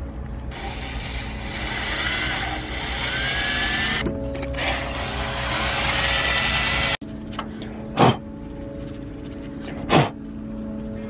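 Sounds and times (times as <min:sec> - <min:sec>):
cordless drill whining: 0:00.5 - 0:07.0.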